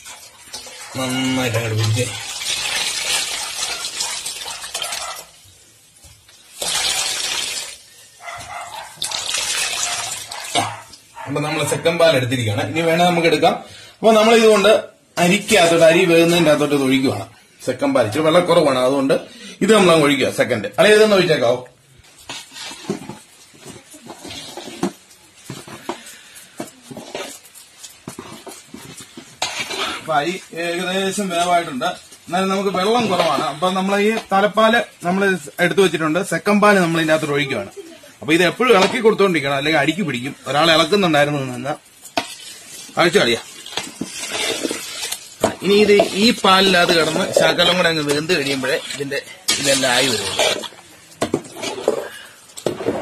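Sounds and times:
liquid splashing into steel basin: 0.0 - 5.3, 6.3 - 7.9, 8.9 - 11.1, 41.9 - 53.0
stirring in metal pot: 0.0 - 11.8, 13.0 - 53.0
clinks and scrapes against pot: 22.1 - 30.4, 41.9 - 53.0.

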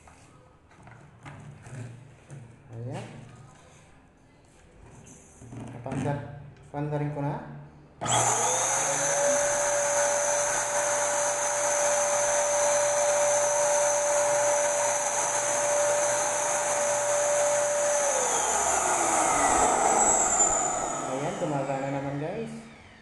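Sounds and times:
paint sprayer turbine blower whine: 8.0 - 23.0.

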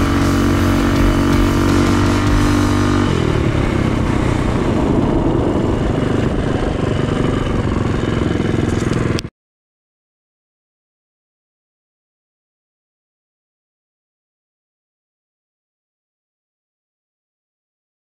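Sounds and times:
minibike engine running: 0.0 - 9.3.

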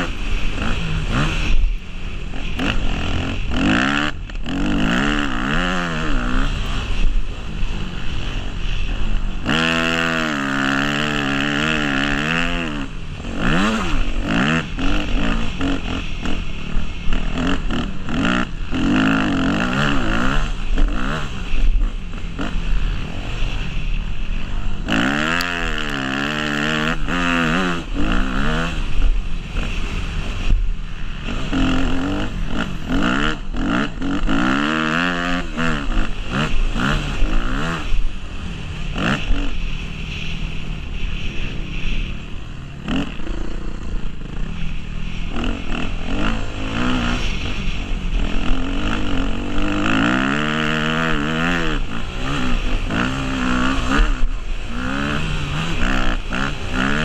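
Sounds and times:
motorcycle engine revving: 0.0 - 57.0
rushing noise: 0.0 - 57.0.

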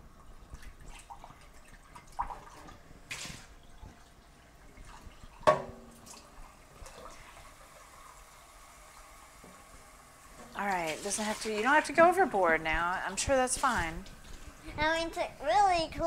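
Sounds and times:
tap water splashing in sink: 4.8 - 7.5
cup knocking in metal sink: 5.4 - 5.9.

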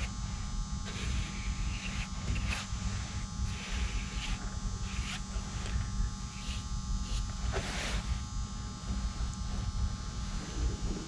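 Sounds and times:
electrical buzz and hum: 0.0 - 11.0
brush swishing on fabric: 0.9 - 8.2.

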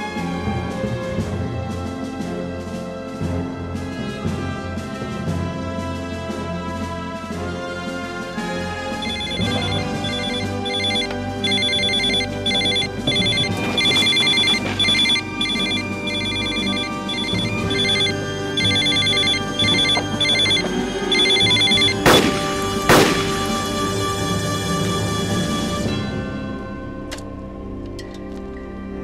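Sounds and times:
orchestral music: 0.0 - 29.0
electronic ringtone beeps: 9.0 - 22.0
sharp bang: 22.0 - 23.8.

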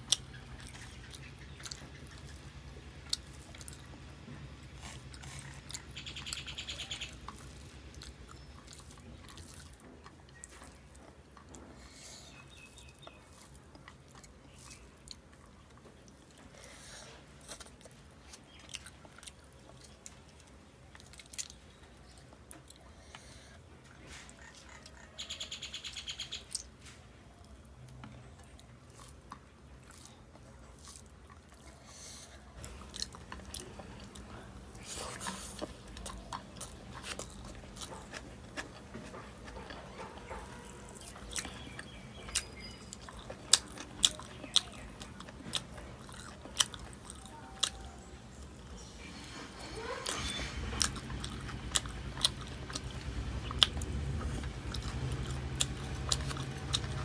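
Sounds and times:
person chewing with wet mouth clicks: 0.0 - 11.9, 28.0 - 48.8, 50.6 - 57.0.

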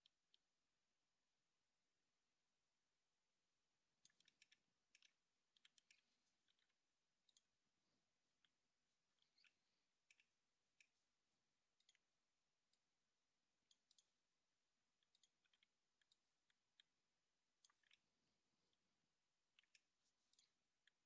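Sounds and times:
computer mouse clicks: 4.0 - 7.5, 8.4 - 11.0, 11.8 - 12.1, 13.6 - 14.2, 15.0 - 17.0, 17.6 - 18.1, 19.5 - 21.0.

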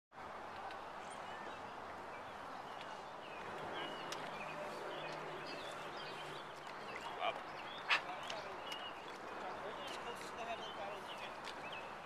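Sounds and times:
wind and water hiss: 0.2 - 12.0.

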